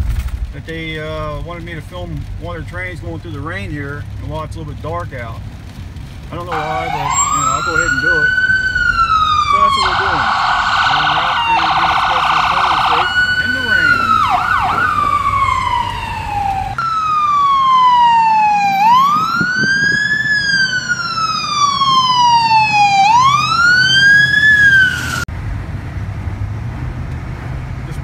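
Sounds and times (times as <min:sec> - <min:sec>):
vehicle road noise: 0:00.0 - 0:28.0
emergency siren wailing: 0:06.4 - 0:25.3.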